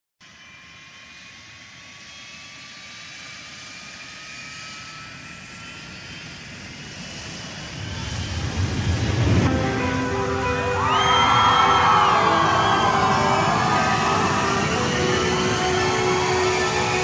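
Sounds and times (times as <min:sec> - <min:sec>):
jet engine whine: 0:00.2 - 0:17.0
rushing noise: 0:07.4 - 0:17.0
deep rumble: 0:07.8 - 0:09.8.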